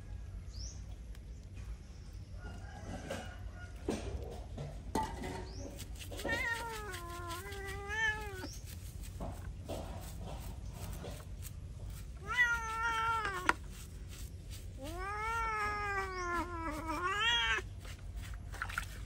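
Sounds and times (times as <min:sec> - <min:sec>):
cat yowling: 0:06.2 - 0:08.5, 0:12.2 - 0:13.6, 0:14.7 - 0:17.7.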